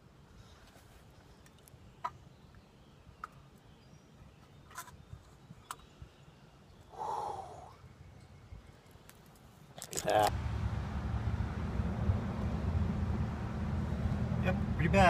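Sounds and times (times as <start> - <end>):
person sighing: 7.0 - 7.8.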